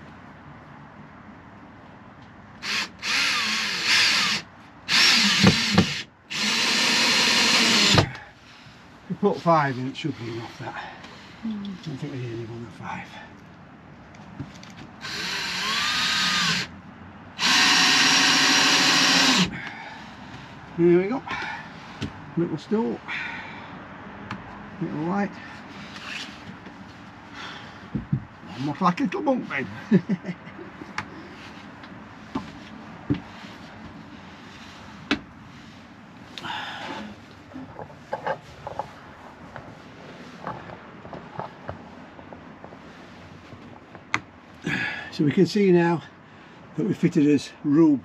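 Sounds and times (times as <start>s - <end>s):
power drill driving screws: 2.6s - 8.2s, 15.0s - 16.7s, 17.4s - 19.5s.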